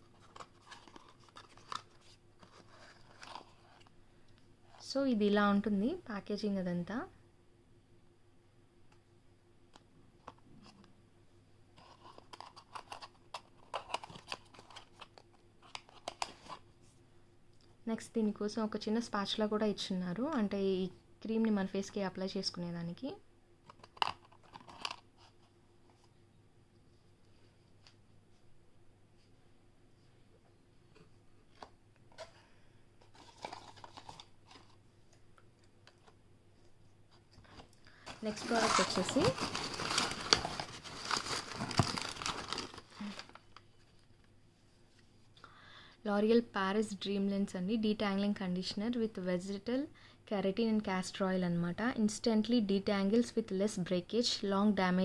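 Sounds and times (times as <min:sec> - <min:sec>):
cardboard crackling and rustling: 0:38.1 - 0:44.0.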